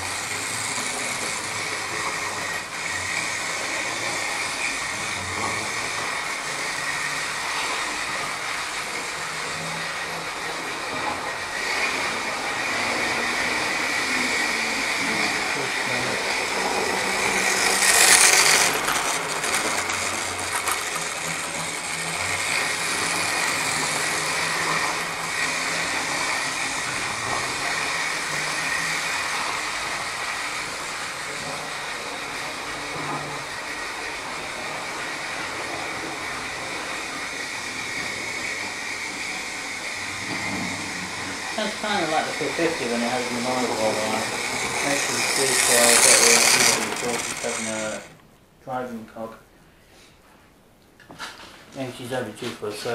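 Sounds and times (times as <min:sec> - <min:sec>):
model train motor whirring: 0:00.0 - 0:48.2.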